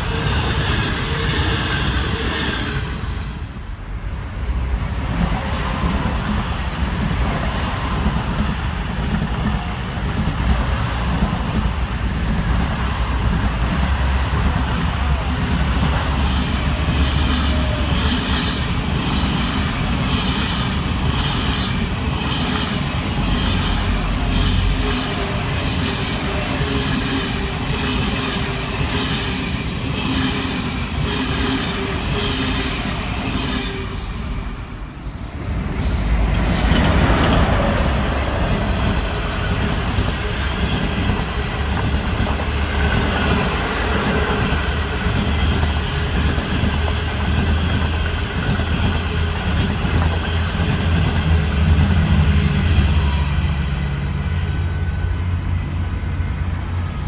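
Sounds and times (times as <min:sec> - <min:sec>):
high-speed train passing: 0:00.0 - 0:57.0
passenger train rumbling past: 0:00.0 - 0:57.0
train wheel clatter: 0:05.0 - 0:34.4, 0:35.6 - 0:54.1.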